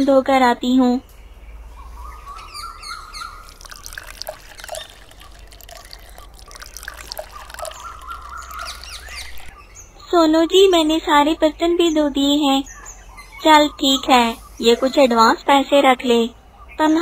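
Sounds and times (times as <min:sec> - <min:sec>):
water trickling from a tap: 0:03.0 - 0:09.6
bubbly water plops: 0:03.2 - 0:09.6.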